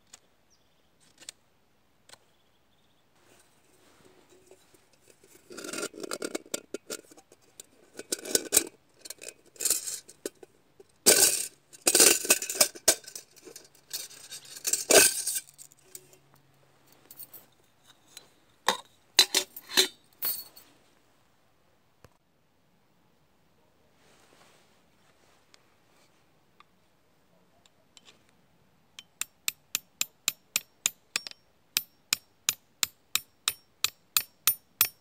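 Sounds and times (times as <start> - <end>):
metal pot clinking and scraping: 3.9 - 10.5, 11.1 - 16.2, 18.7 - 20.5.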